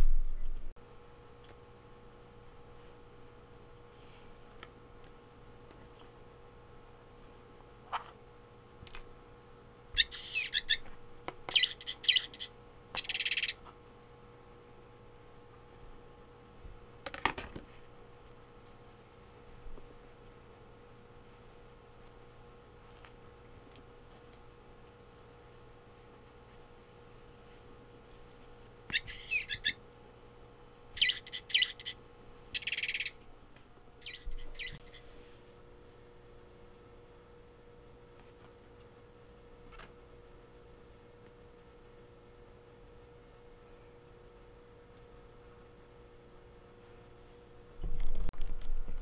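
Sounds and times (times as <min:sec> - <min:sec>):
toy playing bird chirps: 0:10.0 - 0:10.8, 0:11.5 - 0:13.6, 0:28.9 - 0:29.8, 0:31.0 - 0:32.0, 0:32.6 - 0:33.1, 0:34.0 - 0:35.0.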